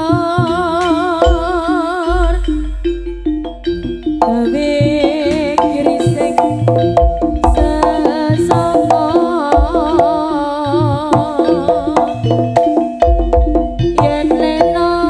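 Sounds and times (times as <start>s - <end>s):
hand drums beating: 0.0s - 15.0s
wavering melody with vibrato: 0.0s - 15.0s
low drum strokes: 1.2s - 5.6s, 6.6s - 10.2s.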